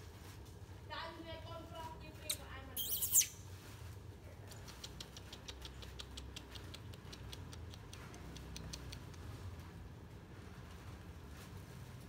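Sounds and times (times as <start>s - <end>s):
baby macaque squealing: 2.3s - 3.4s
faint rapid clicks: 4.5s - 9.7s.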